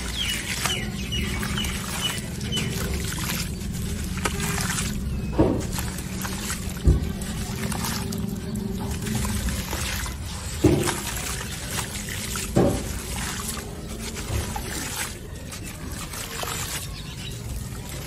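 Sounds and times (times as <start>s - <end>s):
dry chunks crunching: 0.0s - 18.0s
grit trickling: 0.0s - 18.0s.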